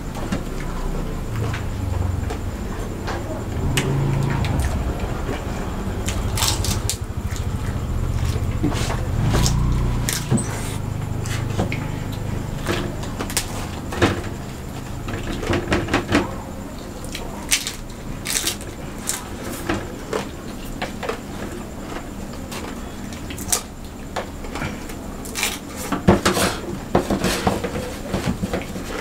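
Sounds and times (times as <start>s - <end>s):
steady low rumble: 0.0s - 15.1s
chewing: 6.0s - 13.8s.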